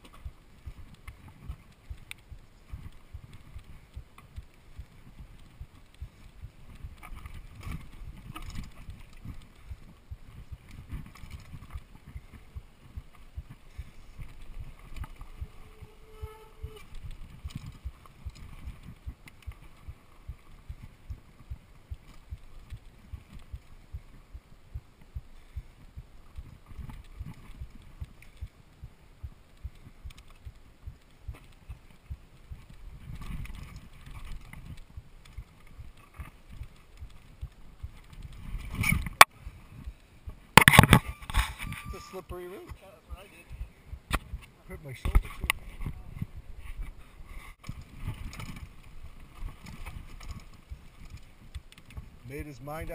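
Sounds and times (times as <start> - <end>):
bike knocking and rattling: 0.0 - 24.1, 25.6 - 41.9, 47.6 - 52.9
brief squeal: 41.0 - 42.2
mountain bike clattering over rocks: 47.6 - 52.9.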